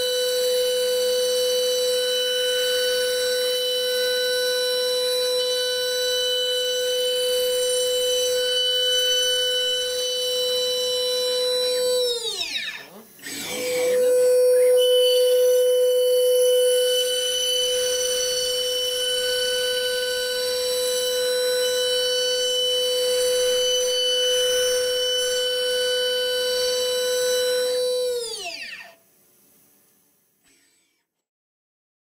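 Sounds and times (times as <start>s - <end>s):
milling spindle whining: 5.4s - 28.9s.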